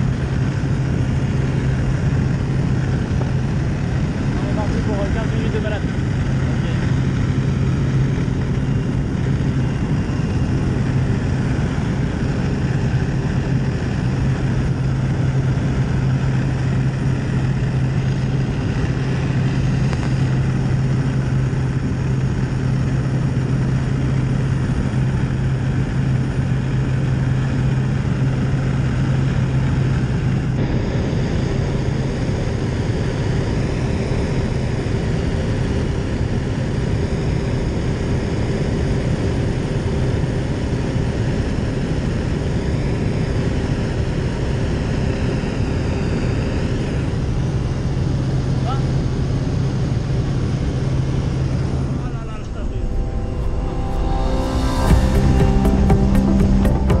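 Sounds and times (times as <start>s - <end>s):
propeller plane droning: 0.0s - 57.0s
higher steady tone: 50.8s - 57.0s
rushing air: 51.1s - 57.0s.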